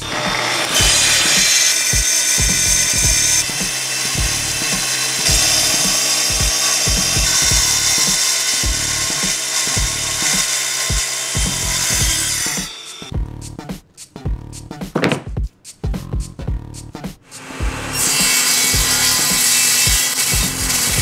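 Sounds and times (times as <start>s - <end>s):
saw cutting plastic whine: 0.0s - 13.1s, 17.4s - 21.0s
background music with beat: 0.0s - 21.0s.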